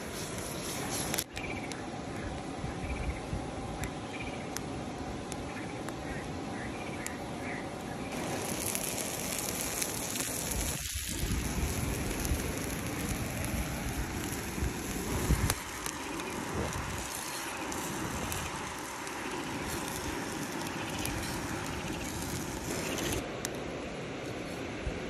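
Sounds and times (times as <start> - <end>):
patties sizzling on stone: 0.0 - 1.4, 8.1 - 23.2
wood fire crackling: 0.0 - 2.6, 3.4 - 25.0.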